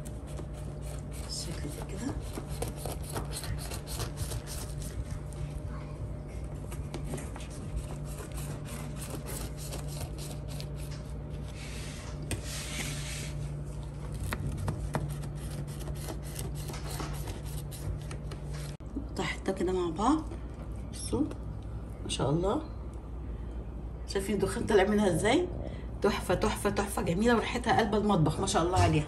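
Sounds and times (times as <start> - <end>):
knife sawing through crisp pastry crust: 0.0 - 5.4, 7.3 - 13.4, 14.1 - 18.2
steady low hum: 0.0 - 29.0.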